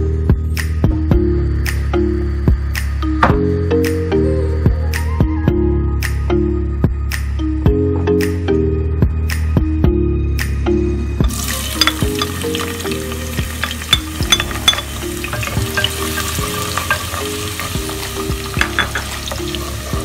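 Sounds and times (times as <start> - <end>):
onion sizzling in hot oil: 11.3 - 20.0
wooden spoon stirring: 11.3 - 20.0.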